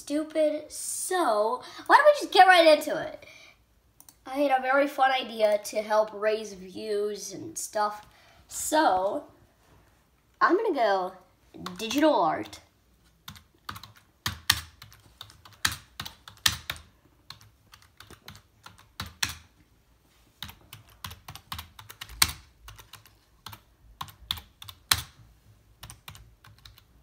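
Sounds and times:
computer keyboard typing: 13.2s - 19.5s, 20.4s - 25.2s, 25.8s - 27.0s.

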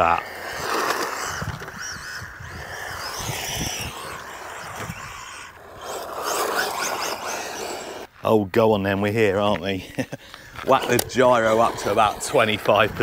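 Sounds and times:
electric motor whining: 0.0s - 8.1s
tyre noise: 0.0s - 8.1s.

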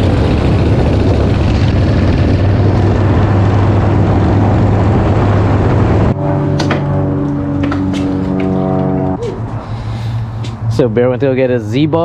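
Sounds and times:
motorcycle engine running: 0.0s - 9.6s.

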